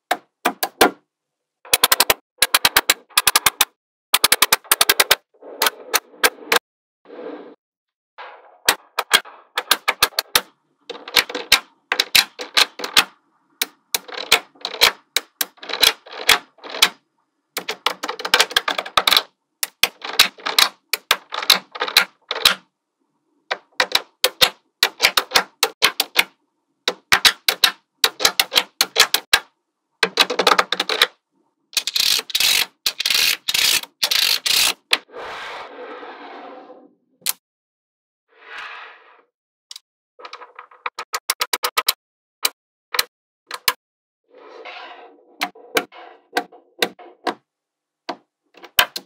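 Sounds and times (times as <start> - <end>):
magnetic balls clicking together: 31.8 - 34.9.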